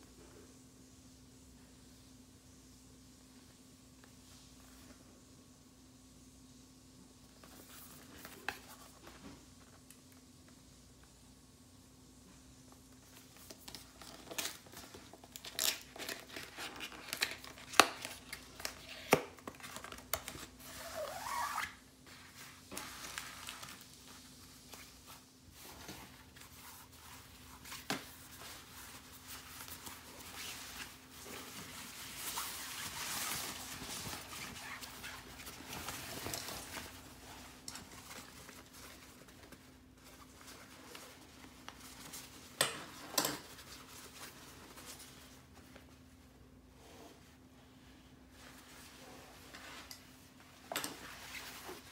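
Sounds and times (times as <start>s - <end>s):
faint steady hum: 0.0s - 51.9s
fabric rustling: 19.5s - 46.5s, 47.1s - 51.9s.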